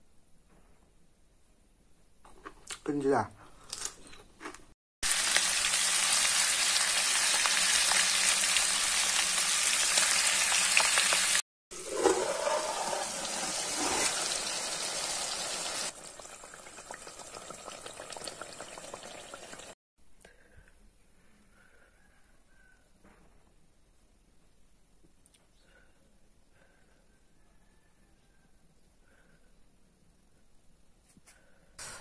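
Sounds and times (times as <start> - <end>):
pork sizzling in oil: 5.0 - 19.8.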